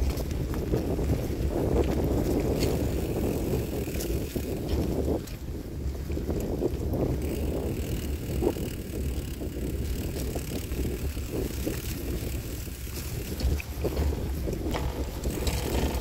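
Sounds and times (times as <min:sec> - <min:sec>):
bicycle rolling over dirt track: 0:00.0 - 0:16.0
wind rumbling on microphone: 0:00.0 - 0:16.0
tyres knocking on bumps: 0:12.6 - 0:16.0.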